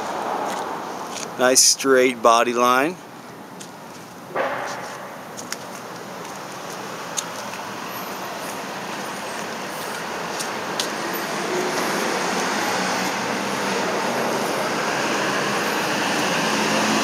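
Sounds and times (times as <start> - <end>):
rush of passing vehicles: 0.0 - 17.0.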